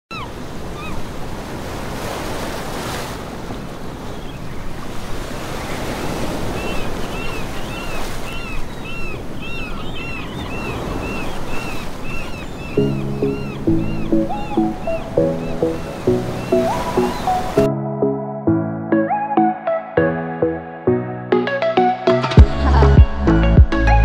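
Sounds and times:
sea water washing: 0:00.1 - 0:17.7
wind buffeting microphone: 0:03.2 - 0:12.8.

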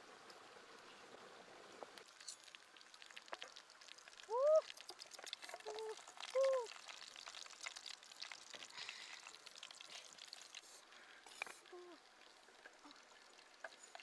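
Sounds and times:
chicken frying in oil: 0:00.0 - 0:14.0.

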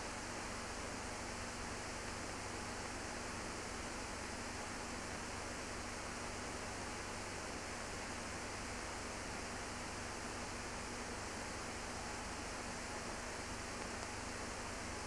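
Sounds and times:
steady film hiss: 0:00.0 - 0:15.0.

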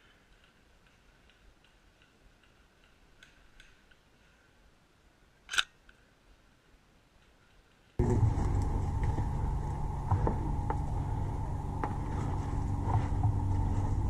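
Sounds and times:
faint clicks and ticks: 0:00.0 - 0:04.8, 0:05.4 - 0:08.0.

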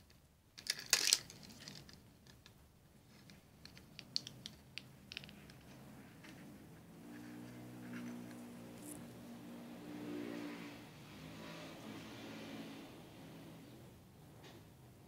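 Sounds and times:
handling rustle and clicks: 0:00.0 - 0:06.6, 0:07.2 - 0:09.2.

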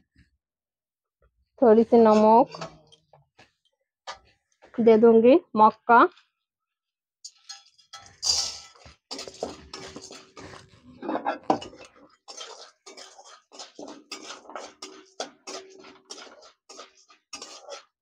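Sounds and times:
metal spatula scraping pan: 0:01.9 - 0:02.9, 0:07.3 - 0:18.0
kernels pouring into hot oil: 0:08.1 - 0:10.5, 0:12.3 - 0:17.9.

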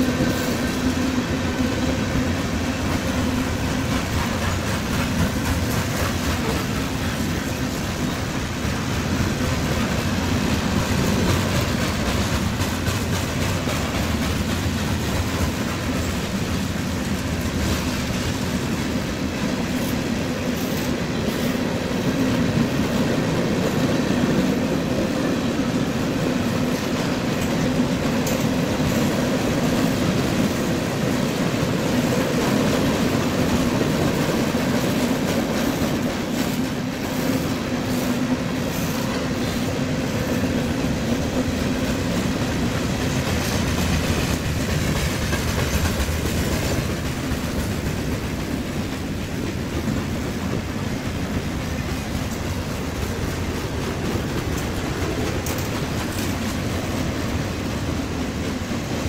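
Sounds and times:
freight train wheels rumbling on rails: 0:00.0 - 0:59.0.

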